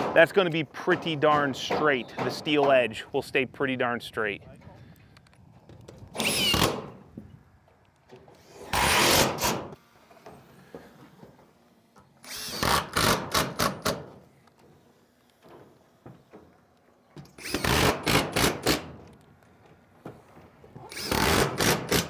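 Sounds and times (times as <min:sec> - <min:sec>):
screw gun driving screws: 0:06.1 - 0:06.8, 0:08.5 - 0:09.6, 0:12.2 - 0:14.0, 0:17.3 - 0:18.9, 0:20.9 - 0:22.0.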